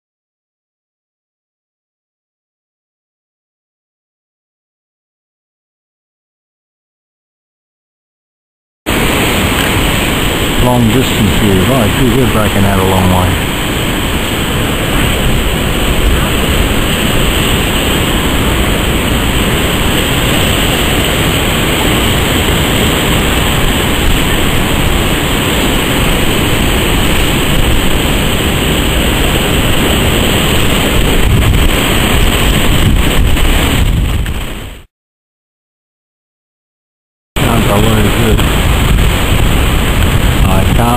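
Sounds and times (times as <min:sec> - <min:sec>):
heavy surf breaking: 0:08.9 - 0:34.9, 0:37.4 - 0:40.9
wind buffeting microphone: 0:08.9 - 0:34.9, 0:37.4 - 0:40.9.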